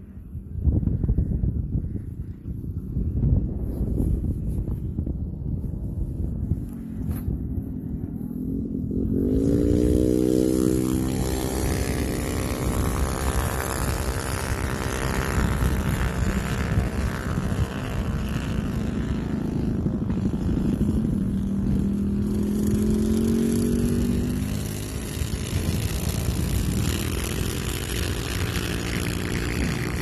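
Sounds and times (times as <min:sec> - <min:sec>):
wind on microphone: 0:00.0 - 0:30.0
minibike engine revving: 0:07.2 - 0:30.0.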